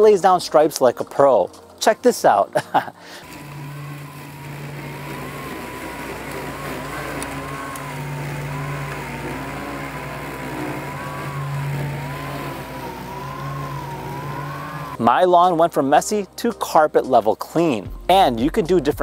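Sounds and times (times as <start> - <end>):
robot lawn mower whining: 2.3 - 15.5.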